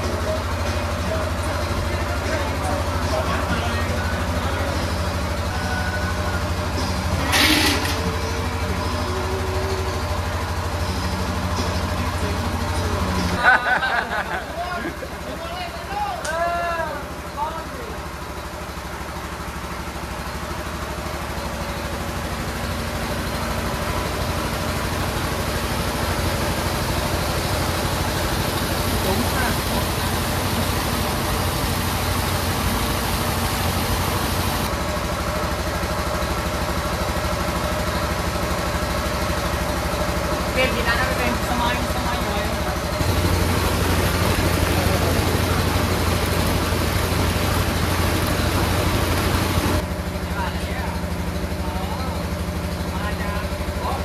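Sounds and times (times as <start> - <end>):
engine throbbing: 0.0 - 54.0.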